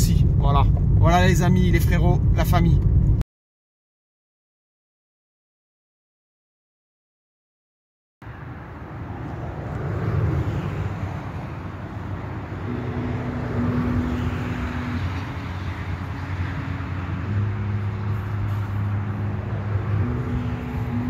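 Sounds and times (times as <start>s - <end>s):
low engine hum: 0.0s - 3.2s, 8.3s - 21.0s
road traffic noise: 8.2s - 21.0s.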